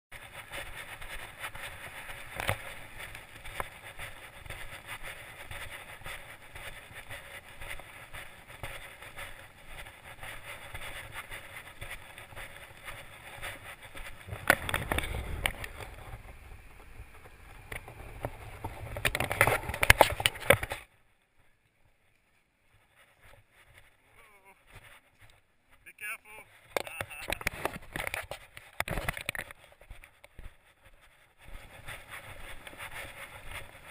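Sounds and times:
footsteps: 0:00.1 - 0:33.9
low rumble: 0:14.3 - 0:18.7.

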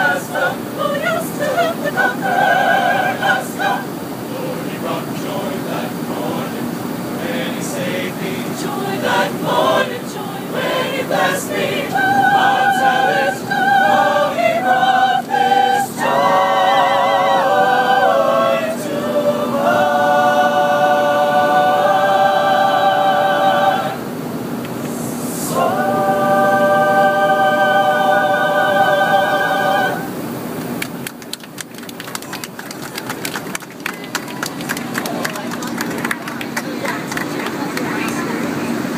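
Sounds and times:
mixed choir singing a cappella: 0:00.0 - 0:30.6
airliner cabin noise: 0:00.0 - 0:38.9
people clapping: 0:30.7 - 0:38.5.

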